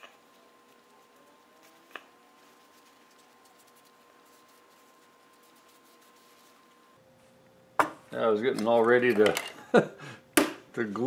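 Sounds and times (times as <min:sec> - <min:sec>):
faint steady hum: 0:00.0 - 0:11.0
ball bearing handled in paper towel: 0:02.4 - 0:06.9.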